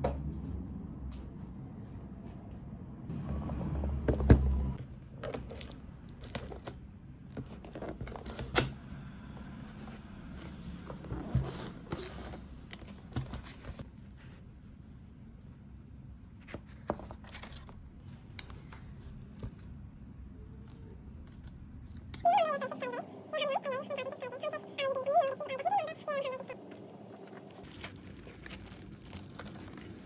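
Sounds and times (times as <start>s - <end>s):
paper rustling: 27.1s - 30.0s.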